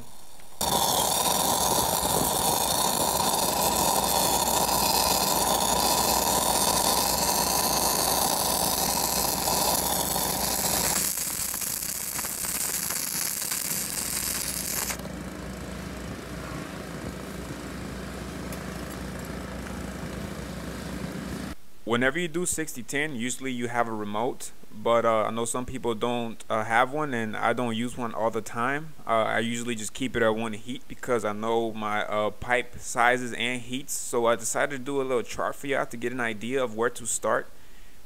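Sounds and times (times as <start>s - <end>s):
welding arc crackling hiss: 0.0s - 15.0s
engine hum: 0.0s - 21.6s.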